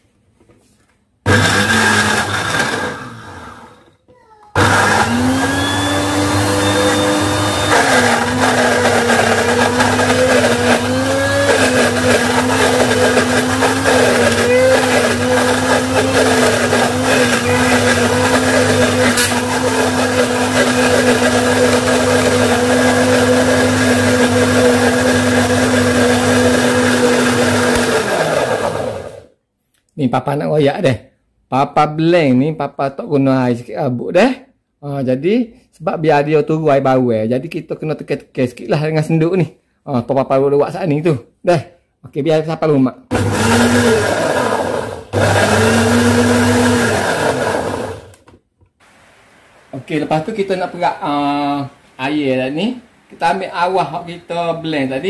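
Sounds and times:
blender motor grinding: 1.2s - 29.3s, 43.1s - 48.4s.

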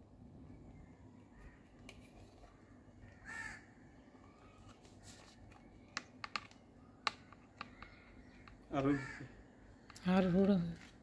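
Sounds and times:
crow cawing: 3.0s - 3.8s, 7.6s - 9.6s
plastic light base clicking: 5.9s - 8.6s.

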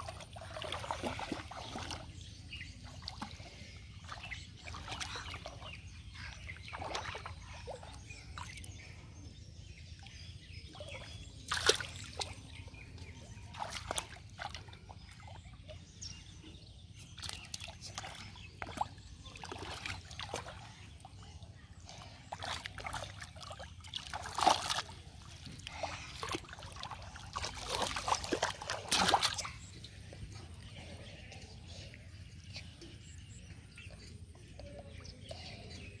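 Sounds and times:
splashing in shallow water: 0.0s - 8.7s, 10.6s - 15.7s, 17.1s - 29.9s.

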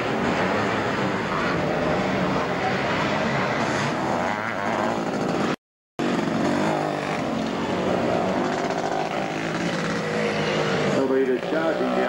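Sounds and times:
racing engines revving: 0.0s - 12.0s.

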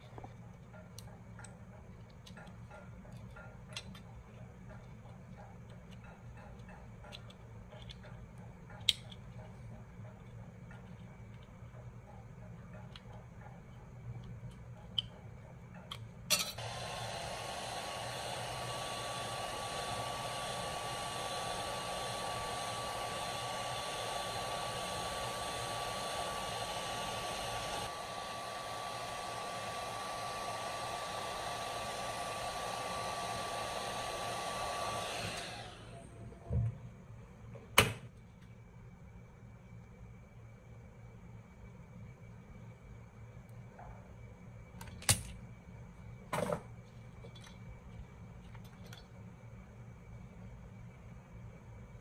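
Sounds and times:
heat gun blower whine: 16.3s - 36.6s.

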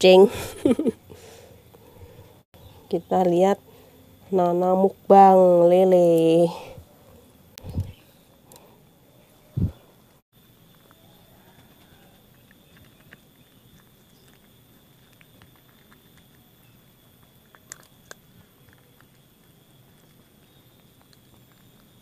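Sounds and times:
cat chewing and crunching: 7.1s - 22.0s.

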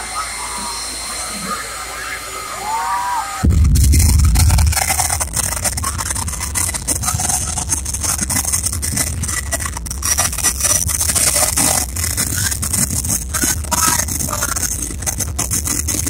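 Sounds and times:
jet engine afterburner roaring: 0.0s - 16.0s
deep loud burst: 3.4s - 15.6s.

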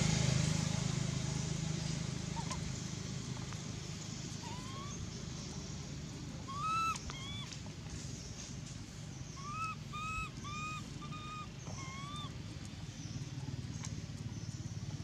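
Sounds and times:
infant monkey coo calls: 2.3s - 2.7s, 4.4s - 5.5s, 6.4s - 7.6s, 9.4s - 12.4s.

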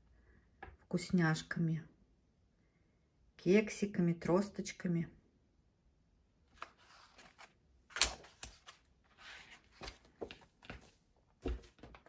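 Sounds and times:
book closed and lifted: 6.5s - 10.8s.

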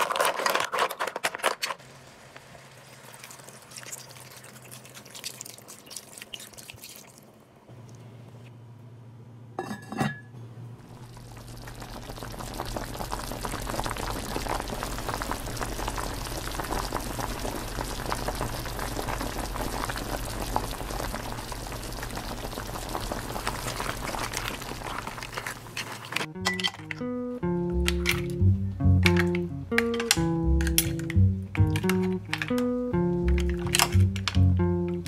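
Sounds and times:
liquid boiling in a pot: 0.0s - 7.7s, 10.8s - 26.3s
low hum: 26.3s - 35.0s.

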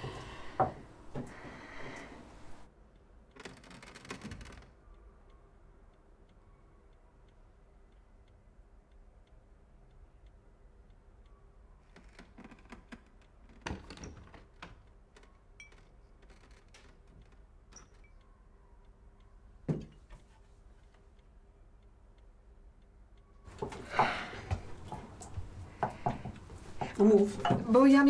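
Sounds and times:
clock ticking: 2.6s - 4.0s, 4.7s - 12.0s, 20.8s - 28.0s.

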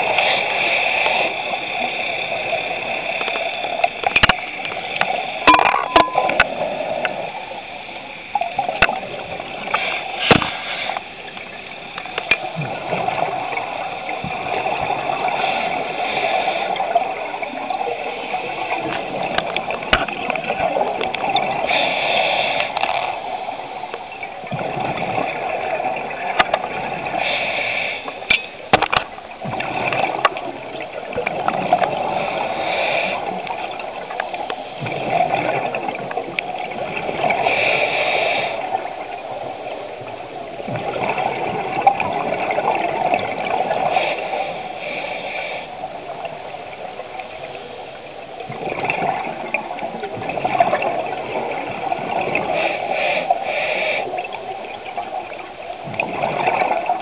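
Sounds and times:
regulator hiss on inhale: 9.4s - 12.4s, 21.6s - 23.2s, 27.1s - 28.3s, 32.0s - 33.5s, 37.3s - 39.0s, 43.8s - 46.2s, 52.4s - 54.4s
gurgling exhaled bubbles: 11.4s - 21.8s, 22.7s - 27.3s, 28.2s - 45.0s, 48.4s - 57.0s.

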